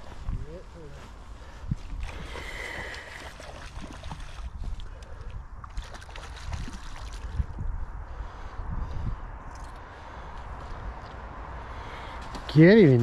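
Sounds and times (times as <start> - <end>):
wind rumble on microphone: 0.0 - 11.7
fish splashing in water: 2.0 - 4.5, 5.7 - 7.3.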